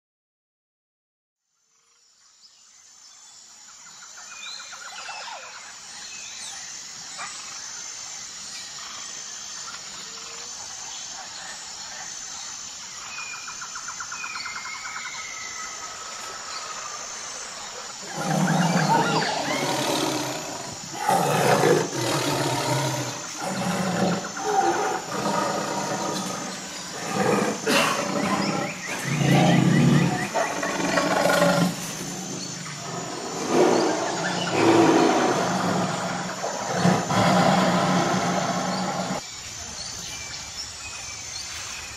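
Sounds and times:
large animal growling and roaring: 0:18.0 - 0:39.2.

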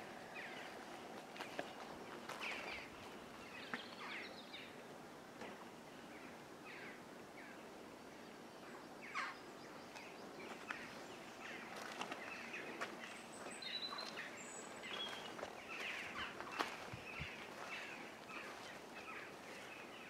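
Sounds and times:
bird chirps: 0:09.1 - 0:19.9.

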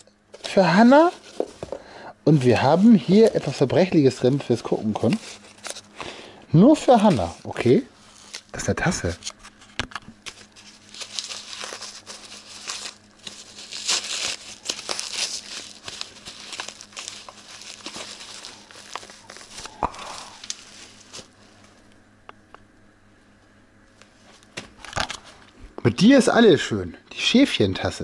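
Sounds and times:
paper towel rustling and crinkling: 0:00.4 - 0:05.9, 0:06.6 - 0:21.9.

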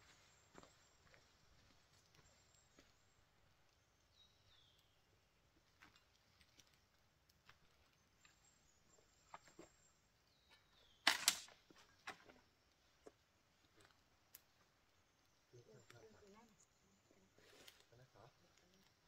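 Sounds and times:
bird chirping: 0:00.0 - 0:05.2, 0:07.6 - 0:11.4.

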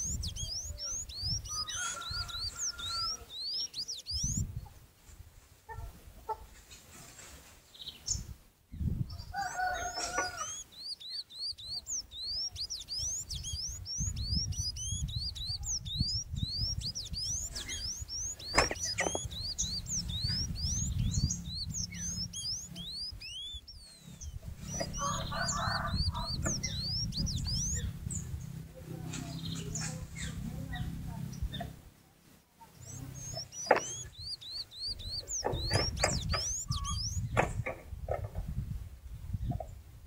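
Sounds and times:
bird singing squeaky notes: 0:00.0 - 0:04.5, 0:09.3 - 0:28.2, 0:32.7 - 0:37.6
lower bird call: 0:09.1 - 0:28.2, 0:32.8 - 0:37.4
low rumble: 0:13.2 - 0:31.8.

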